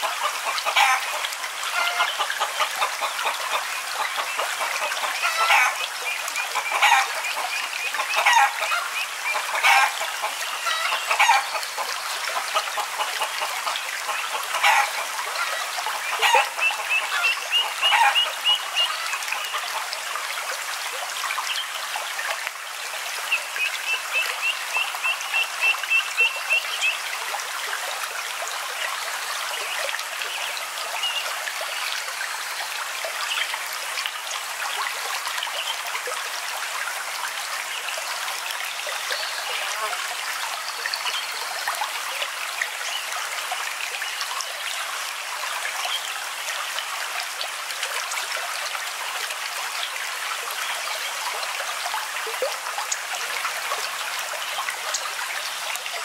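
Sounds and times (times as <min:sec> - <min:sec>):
water trickling and babbling: 0:00.0 - 0:56.0.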